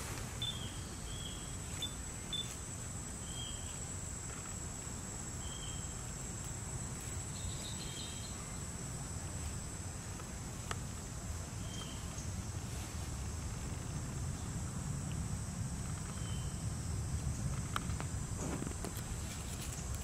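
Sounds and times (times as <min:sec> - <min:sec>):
high insect drone: 0:00.0 - 0:20.0
low wind rumble: 0:00.0 - 0:20.0.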